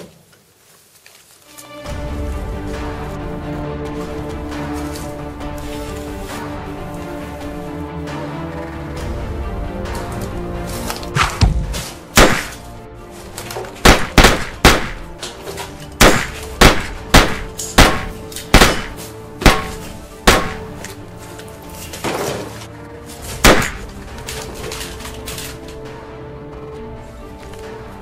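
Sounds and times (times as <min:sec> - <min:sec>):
handgun shots: 0:11.2 - 0:12.6, 0:13.8 - 0:15.2, 0:16.0 - 0:20.8, 0:23.4 - 0:23.9.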